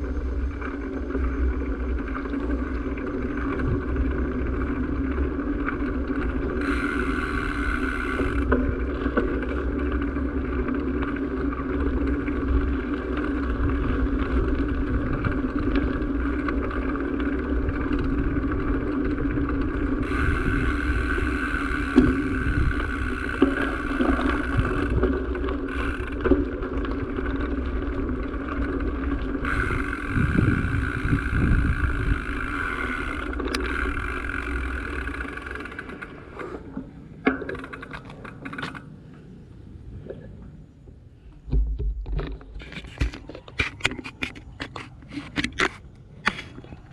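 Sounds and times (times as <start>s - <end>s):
wind rumble on microphone: 0.0s - 37.2s
engine drone: 0.0s - 43.2s.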